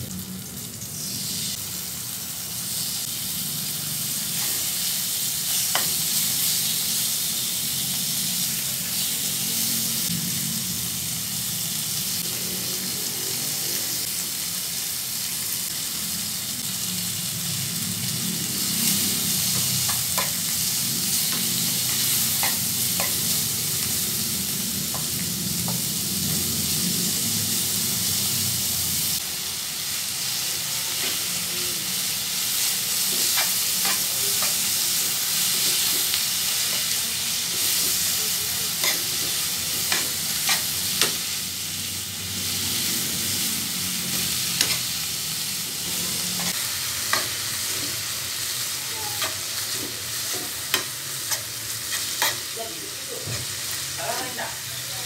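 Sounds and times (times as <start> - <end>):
meat sizzling in a frying pan: 0.0 - 55.0
metal spoon scraping a pan: 44.1 - 45.0, 49.0 - 52.6.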